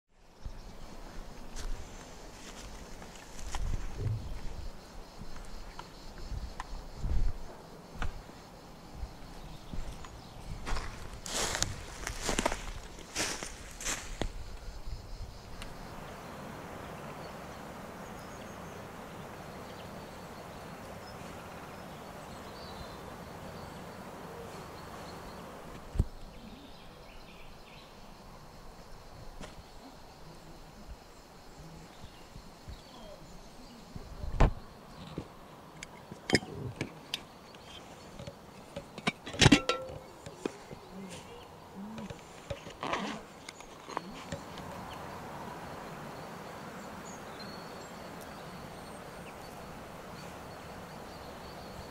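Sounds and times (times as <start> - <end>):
footsteps crunching dry leaves: 10.6 - 14.4
forest stream rushing: 15.7 - 25.9, 42.4 - 51.9
metal pot clinks and knocks: 38.7 - 40.5
metallic clatter and ring: 39.0 - 40.2.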